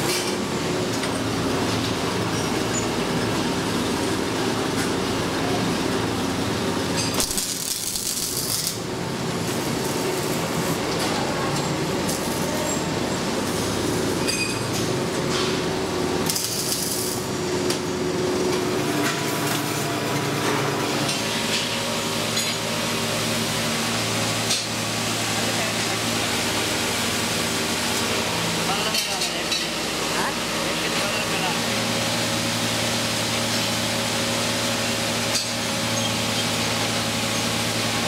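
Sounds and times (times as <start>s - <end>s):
workshop machine drone: 0.0s - 38.0s
arc welding hiss: 7.1s - 8.9s, 16.2s - 17.3s.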